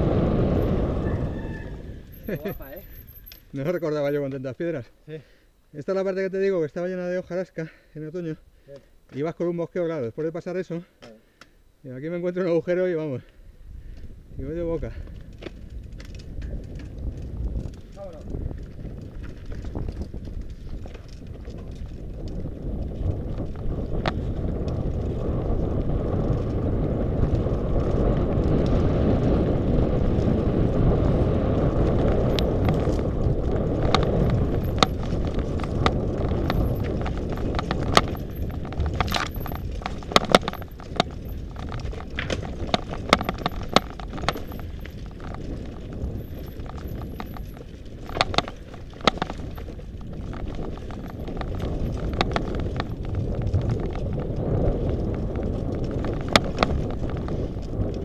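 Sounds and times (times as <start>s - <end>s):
wind and tyres rumbling: 0.0s - 4.8s, 12.3s - 58.0s
bike clacking over rocks: 31.7s - 58.0s.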